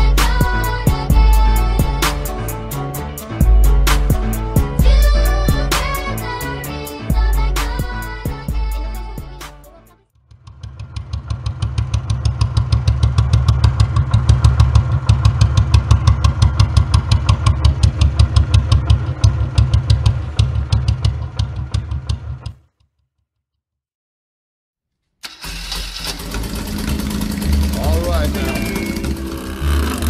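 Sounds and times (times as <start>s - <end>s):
motorcycle engine running: 10.3s - 22.7s, 25.8s - 30.0s.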